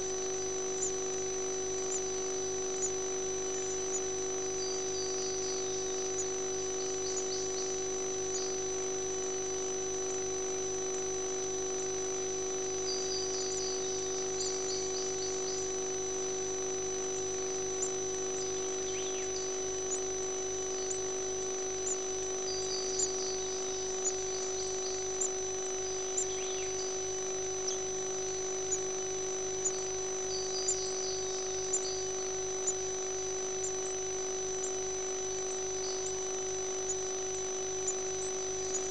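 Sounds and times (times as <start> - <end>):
electrical hum: 0.0 - 38.9
faint bird chirps: 1.8 - 9.3, 12.7 - 16.0, 17.2 - 38.9.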